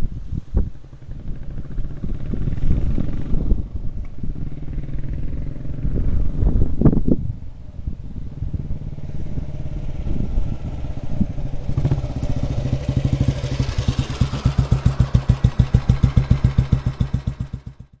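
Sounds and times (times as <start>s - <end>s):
single-cylinder engine idling: 8.3s - 18.0s.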